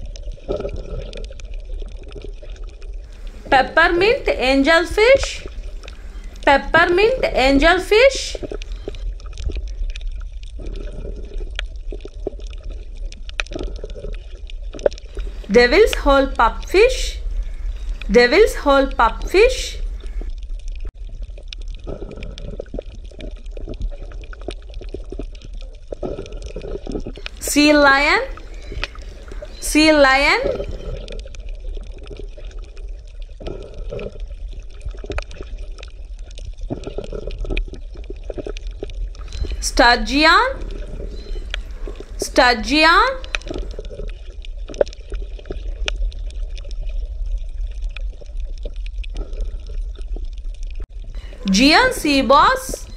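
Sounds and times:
water bubbling: 0:00.0 - 0:20.4, 0:21.0 - 0:52.9
sea lions roaring: 0:26.0 - 0:31.1, 0:39.2 - 0:43.8.

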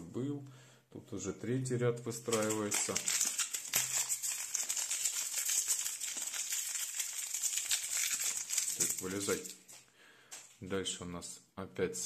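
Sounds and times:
foil packet crinkling: 0:02.2 - 0:09.8.

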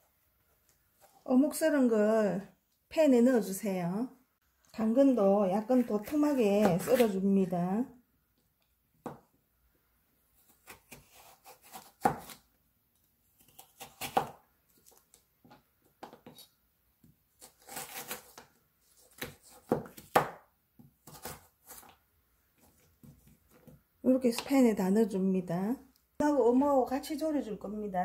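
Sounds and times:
knife slicing carrot: 0:10.4 - 0:12.5, 0:13.4 - 0:15.0, 0:17.4 - 0:22.0.

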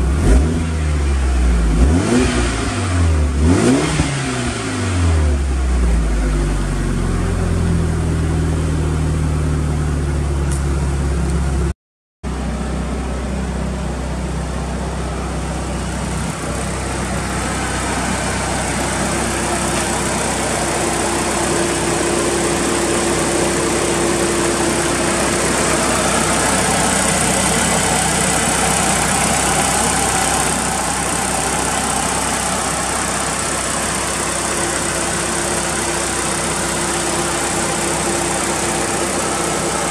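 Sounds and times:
car engine idling: 0:00.0 - 0:11.7, 0:12.3 - 0:39.9.

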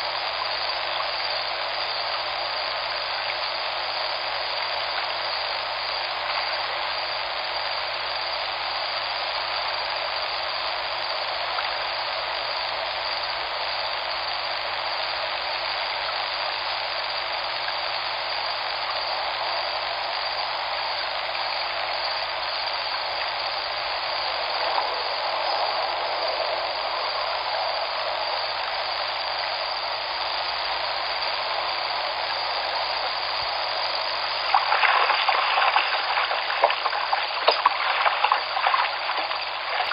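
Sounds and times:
river water rushing: 0:31.3 - 0:39.9.

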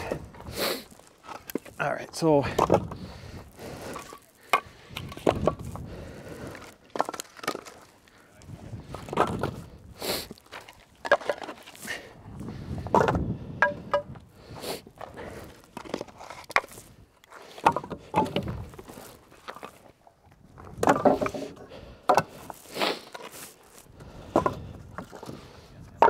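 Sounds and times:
firewood clunking onto pile: 0:02.4 - 0:03.0, 0:06.6 - 0:07.9, 0:09.0 - 0:09.6, 0:12.8 - 0:14.2, 0:17.6 - 0:19.8, 0:20.6 - 0:23.4, 0:24.2 - 0:25.4.

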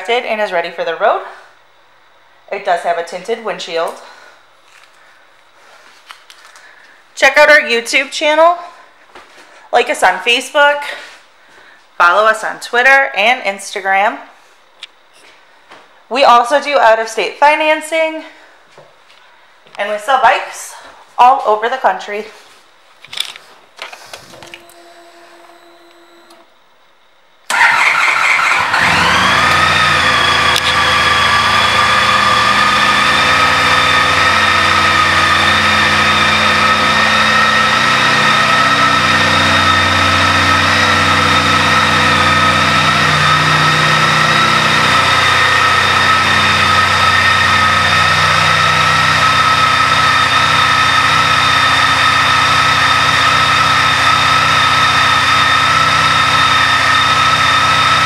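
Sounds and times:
motorcycle engine starting and idling: 0:27.5 - 0:58.0.

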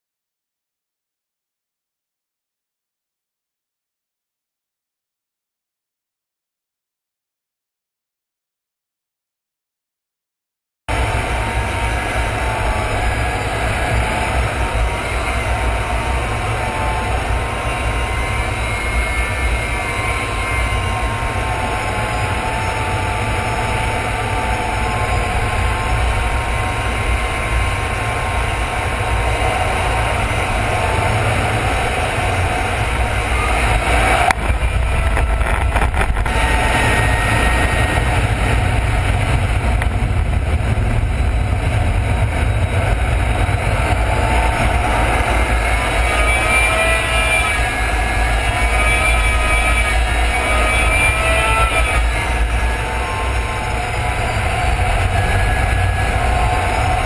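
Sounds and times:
faint whining tones: 0:10.9 - 0:57.0
jet engine and airflow rumble: 0:10.9 - 0:57.0
crackling: 0:33.2 - 0:38.1.

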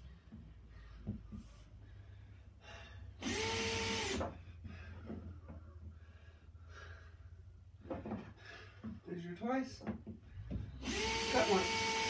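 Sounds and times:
power drill motor whine: 0:03.2 - 0:04.3, 0:10.8 - 0:12.0.

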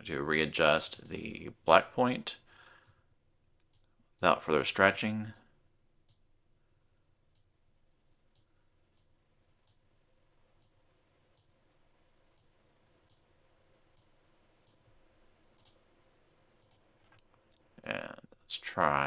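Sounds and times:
faint computer mouse clicks: 0:15.6 - 0:15.8.

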